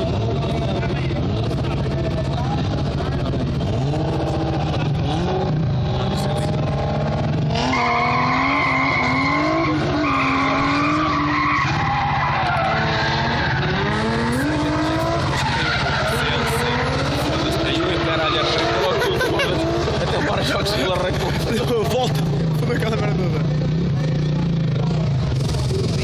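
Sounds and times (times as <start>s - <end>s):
car engine revving: 0.0s - 26.0s
tyres squealing: 7.6s - 20.0s.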